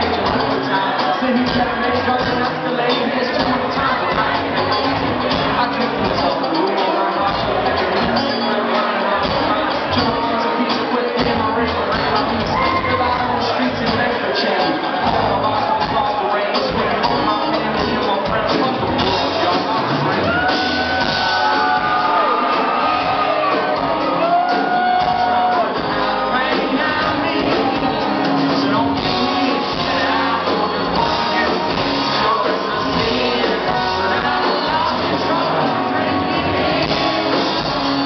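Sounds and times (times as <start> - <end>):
live country-rock band playing: 0.0 - 38.0
person singing: 0.0 - 38.0
audience members shouting: 20.1 - 25.8.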